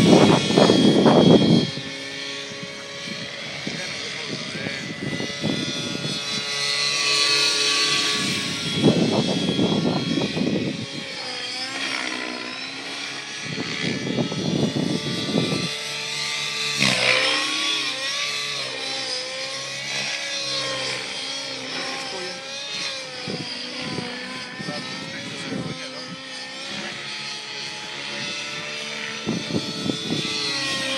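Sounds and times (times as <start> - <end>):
wind buffeting microphone: 0.0 - 6.8, 8.0 - 11.3, 13.3 - 15.8, 22.7 - 30.9
model aircraft engine whining: 0.0 - 30.9.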